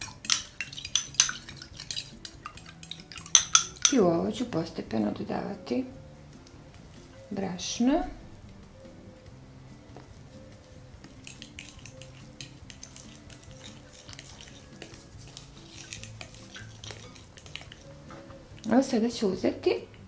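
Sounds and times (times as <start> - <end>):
fork scraping a glass bowl: 0.0 - 4.0, 11.0 - 18.7
soft background music: 0.0 - 20.0.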